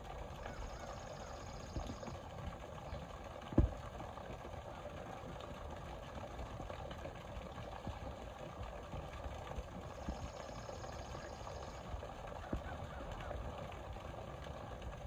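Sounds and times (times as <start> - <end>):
waterfall splashing into pond: 0.0 - 15.0.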